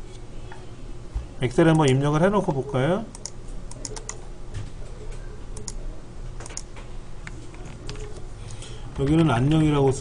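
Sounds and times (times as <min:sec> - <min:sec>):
steady low hum: 0:00.0 - 0:10.0
computer keyboard clicks: 0:03.1 - 0:04.2, 0:05.6 - 0:05.8, 0:06.4 - 0:06.8.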